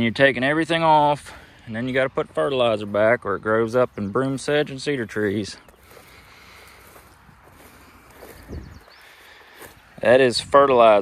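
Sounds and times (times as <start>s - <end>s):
footsteps swishing through wet grass: 5.2s - 10.1s.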